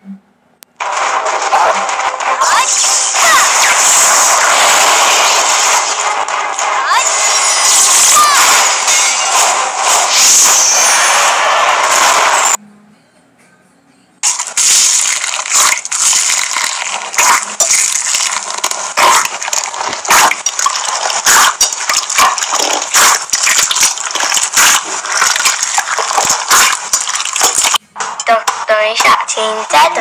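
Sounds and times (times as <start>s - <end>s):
slime squelching: 14.2s - 30.0s.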